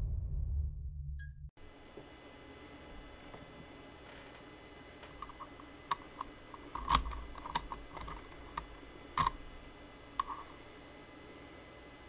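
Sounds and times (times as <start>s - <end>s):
metallic lock picking clicks: 5.2s - 9.4s.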